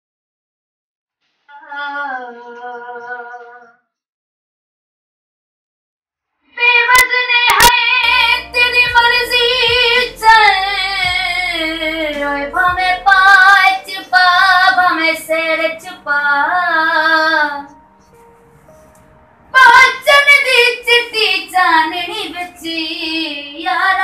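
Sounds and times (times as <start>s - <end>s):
woman singing: 1.5s - 3.5s, 6.6s - 17.7s, 19.6s - 24.0s.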